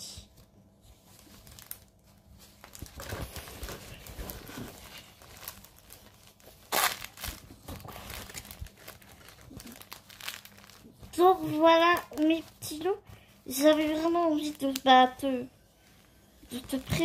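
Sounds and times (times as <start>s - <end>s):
canvas and packaging crinkling: 0.8s - 17.0s.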